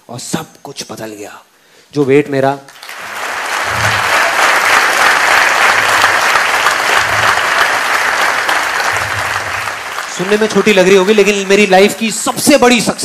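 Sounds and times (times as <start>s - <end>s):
audience clapping: 2.7s - 13.0s.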